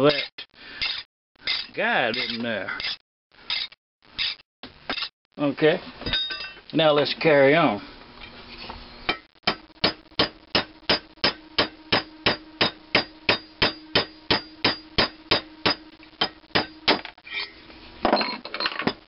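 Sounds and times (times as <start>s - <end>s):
steady hum: 4.0s - 18.1s.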